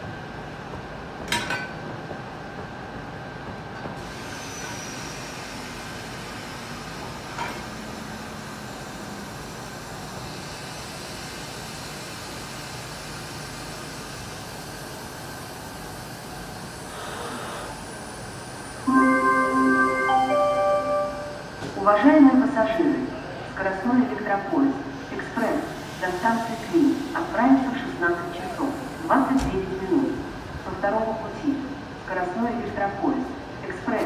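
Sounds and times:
electric locomotive whine: 16.2 - 23.6.

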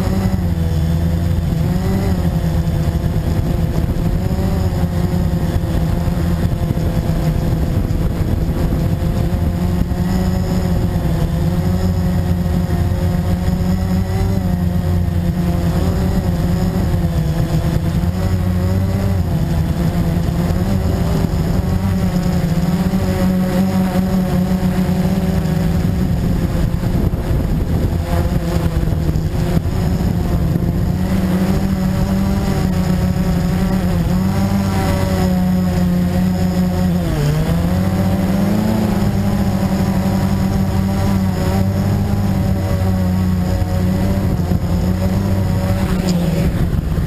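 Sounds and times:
quadcopter motors buzzing: 0.0 - 47.0.

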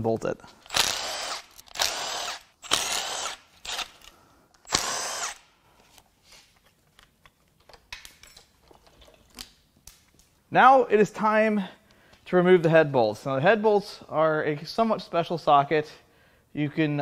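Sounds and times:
power tool spinning bolts: 0.6 - 5.4
metal parts clicking and clinking: 7.0 - 9.5.

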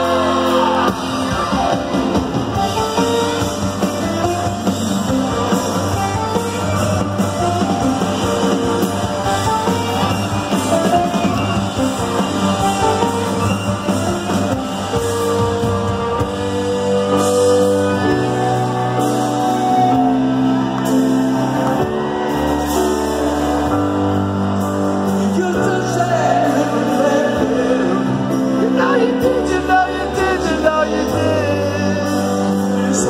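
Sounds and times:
live rock band playing: 0.0 - 33.0
person singing: 25.1 - 33.0.

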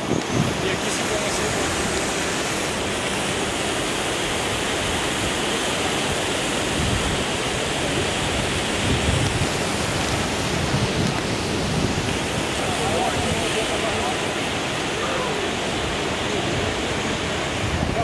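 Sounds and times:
river rapids rushing: 0.0 - 18.0
wind rumbling on microphone: 0.0 - 18.0.

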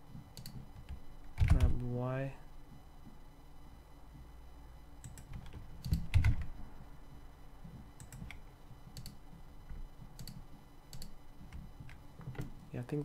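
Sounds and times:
keyboard and mouse clicking: 0.3 - 1.8, 5.0 - 6.5, 8.0 - 9.2, 10.2 - 12.0.

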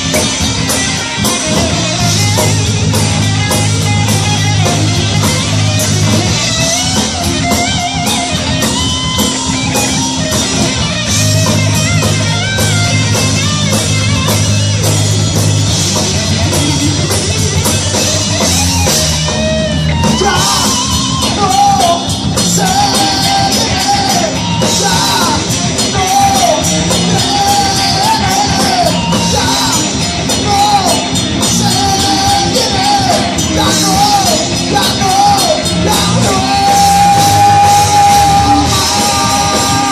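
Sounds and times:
bass guitar: 0.0 - 39.9
distorted electric guitar: 0.0 - 39.9
drum kit: 0.0 - 39.9
man singing: 20.1 - 39.9.

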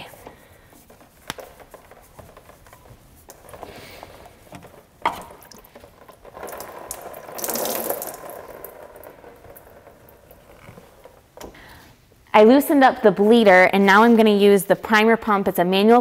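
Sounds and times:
fuel pouring into drain pan: 5.1 - 10.6.

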